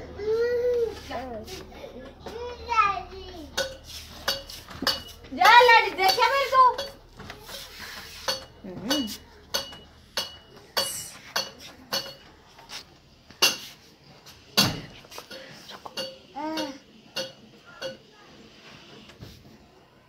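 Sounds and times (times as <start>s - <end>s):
metal dishes clattering: 3.5s - 12.4s, 14.5s - 18.1s.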